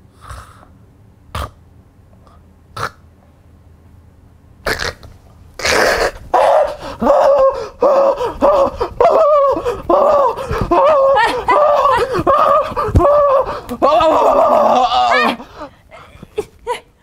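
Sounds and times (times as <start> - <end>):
man whimpering: 6.0 - 16.8.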